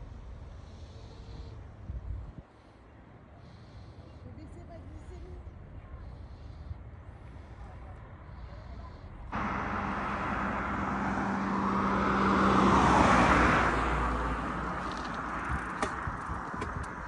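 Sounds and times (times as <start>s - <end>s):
car passing: 9.3s - 17.0s.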